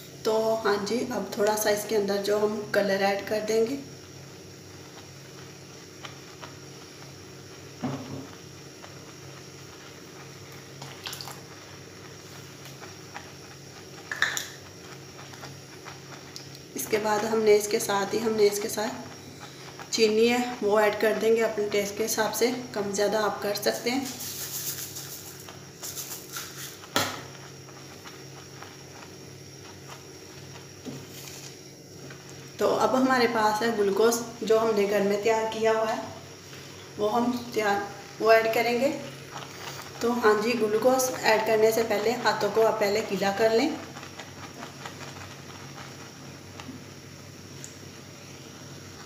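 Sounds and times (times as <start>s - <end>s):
milk bubbling at a boil: 0.0s - 49.0s
steady low hum: 0.0s - 49.0s
spatula knocking and scraping a pan: 7.8s - 8.4s, 26.6s - 27.4s.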